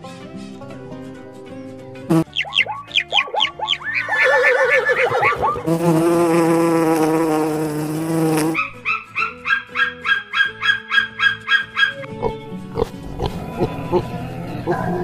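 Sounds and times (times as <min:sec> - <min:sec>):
honeybee buzzing: 0:02.1 - 0:02.4, 0:05.4 - 0:08.6
quick falling calls: 0:02.2 - 0:05.7.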